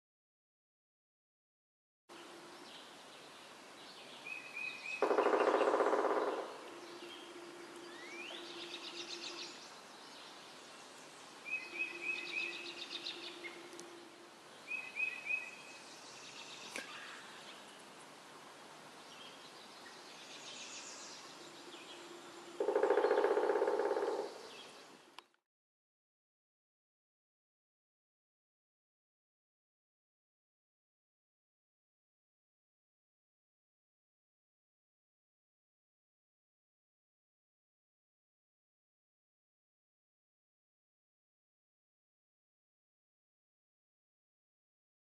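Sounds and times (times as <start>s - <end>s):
songbirds singing: 2.1s - 25.4s
lower-pitched bird calls: 4.2s - 9.7s, 11.4s - 15.8s, 19.8s - 25.0s.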